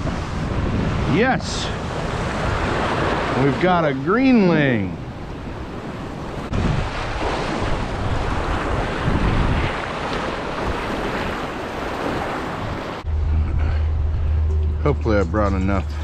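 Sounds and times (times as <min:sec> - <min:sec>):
wind rumbling on microphone: 0:00.0 - 0:03.7, 0:04.8 - 0:16.0
surf washing against rocks: 0:00.0 - 0:13.1
steady low hum: 0:13.1 - 0:16.0.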